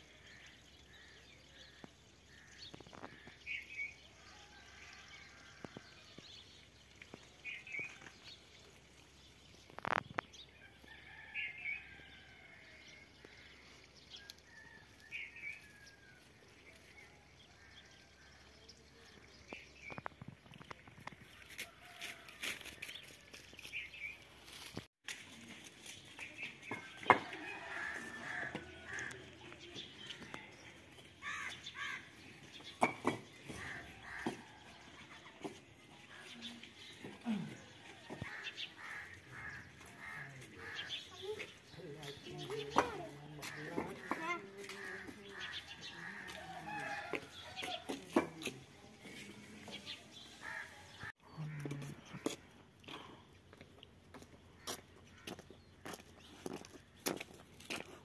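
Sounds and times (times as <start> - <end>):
birds calling: 26.2 - 48.5.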